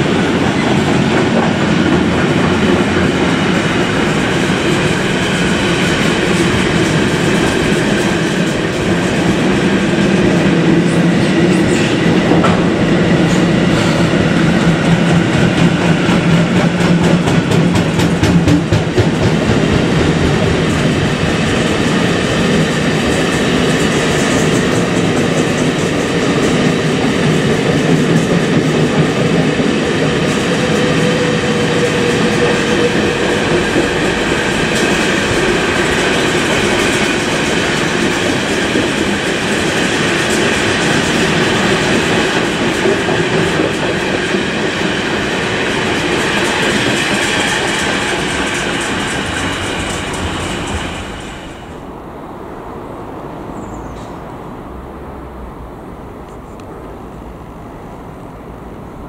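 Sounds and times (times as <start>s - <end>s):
train wheels rumbling on rail: 0.0s - 59.0s
train wheel clicks: 14.5s - 51.4s.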